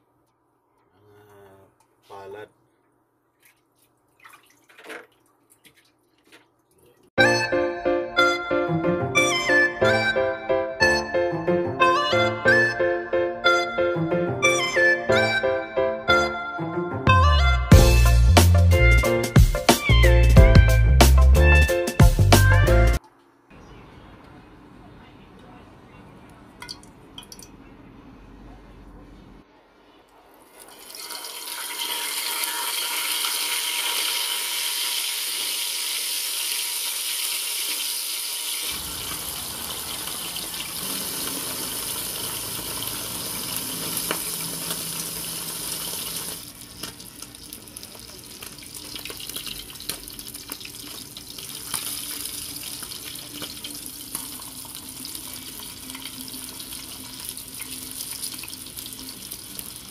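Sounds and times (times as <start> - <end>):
fish sizzling in hot oil: 30.7 - 59.9.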